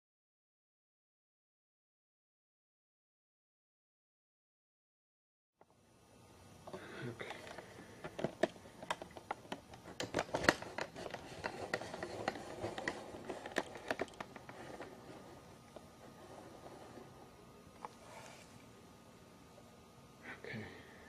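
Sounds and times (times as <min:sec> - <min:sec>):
sharp clicks and scratches: 0:07.3 - 0:17.1.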